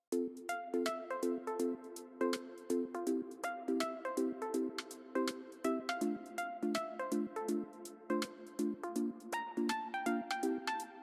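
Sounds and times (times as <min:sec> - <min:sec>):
upbeat electronic music: 0:00.1 - 0:11.0.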